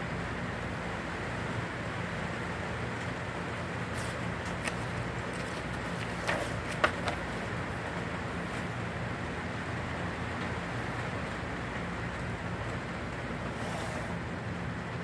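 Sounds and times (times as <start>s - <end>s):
low background hum: 0.0s - 15.0s
paper rustling: 3.8s - 7.6s
magazine page slapping: 3.9s - 7.5s.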